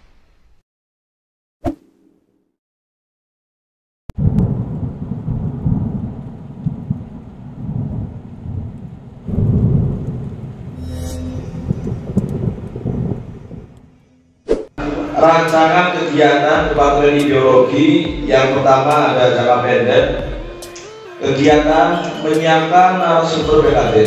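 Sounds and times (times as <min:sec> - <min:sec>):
rain: 0:04.2 - 0:10.8, 0:11.6 - 0:13.9
thunder rumbling: 0:04.2 - 0:10.8, 0:11.4 - 0:14.1.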